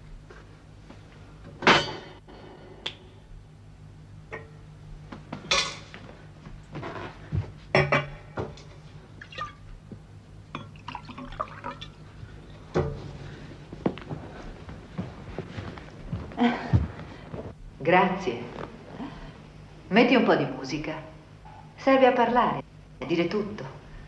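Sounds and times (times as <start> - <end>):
steady low hum: 0.0 - 24.0
glassware clinking on glass table: 7.7 - 8.2
drink pouring into glass: 10.6 - 12.0.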